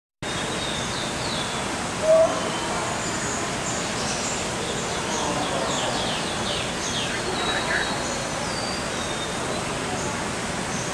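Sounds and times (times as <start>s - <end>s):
birds chirping and twittering: 0.2s - 10.9s
loud bird call: 6.9s - 8.0s.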